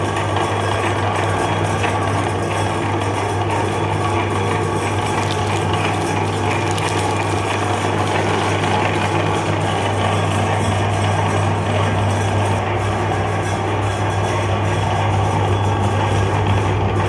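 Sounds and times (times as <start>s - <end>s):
electric meat grinder grinding: 4.9s - 9.7s.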